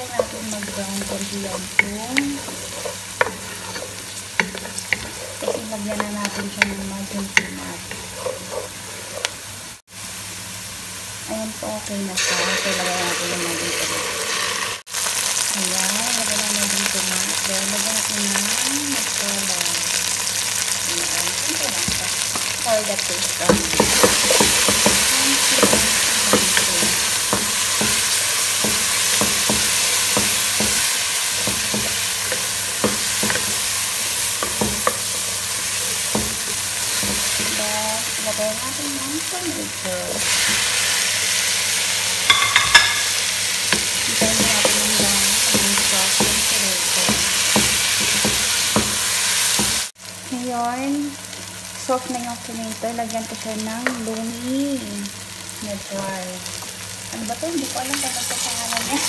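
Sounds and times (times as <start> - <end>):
onion sizzling in hot oil: 0.0 - 59.0
wooden spoon scraping pan: 0.1 - 9.6, 23.4 - 39.0.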